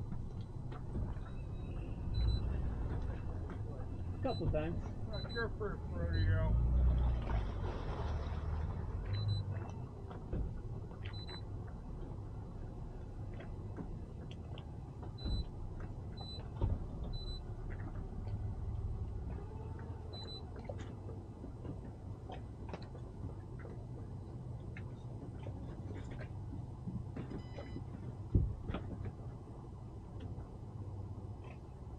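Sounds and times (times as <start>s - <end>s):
boat engine idling: 0.0s - 31.9s.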